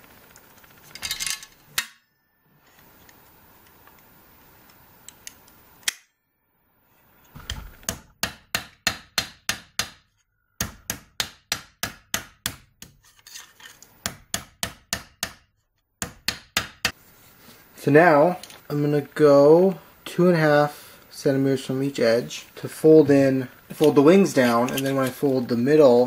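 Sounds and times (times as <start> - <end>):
hammer tapping sheet steel: 7.7 - 13.1, 13.7 - 17.0.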